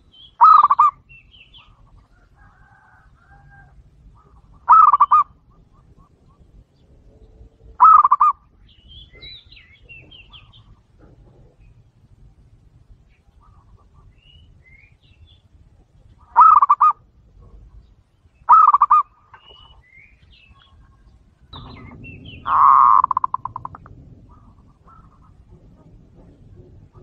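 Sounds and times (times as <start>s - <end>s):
small birds chirping: 0.0s - 2.6s, 3.2s - 27.0s
dove cooing: 0.4s - 1.0s, 1.8s - 12.2s, 16.2s - 17.8s, 18.5s - 19.8s, 20.5s - 27.0s.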